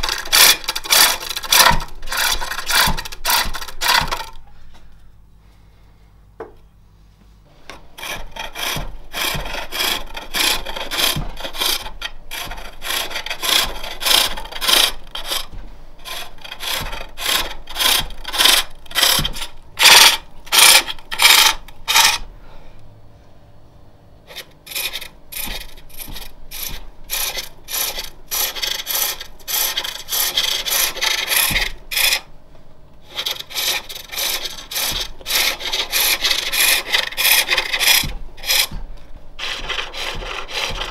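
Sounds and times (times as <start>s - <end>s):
lathe tool rasping cuts on wood: 0.0s - 4.3s, 8.0s - 22.2s, 24.3s - 32.3s, 33.1s - 38.8s, 39.4s - 40.9s.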